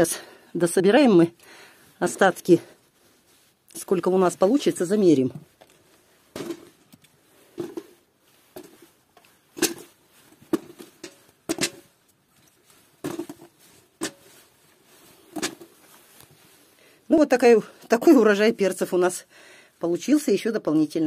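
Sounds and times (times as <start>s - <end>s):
peppers dropping into metal bucket: 9.6s - 9.9s, 10.5s - 11.9s.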